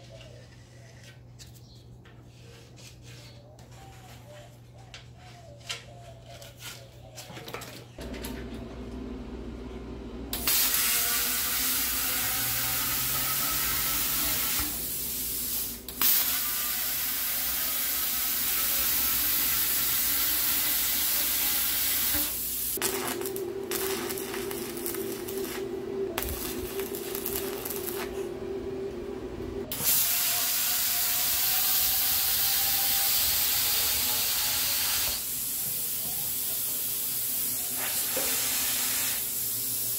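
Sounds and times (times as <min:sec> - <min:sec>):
low machine hum: 0:08.0 - 0:10.5, 0:22.8 - 0:29.8
plasma cutter hissing: 0:10.3 - 0:28.2, 0:29.7 - 0:39.9.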